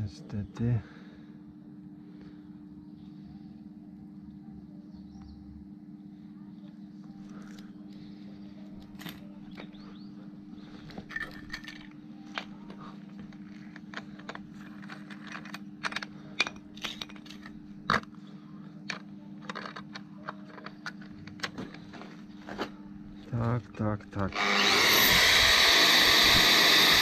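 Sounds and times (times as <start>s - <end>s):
steady low hum: 0.0s - 27.0s
metal tools clinking: 11.1s - 12.4s, 13.5s - 17.6s.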